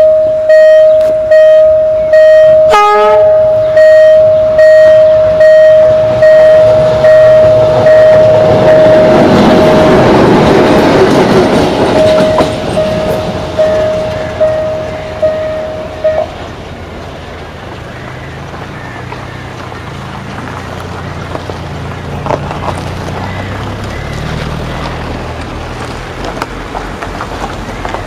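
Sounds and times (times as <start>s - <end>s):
level-crossing warning bell: 0.0s - 16.8s
diesel locomotive rumbling past: 0.0s - 28.0s.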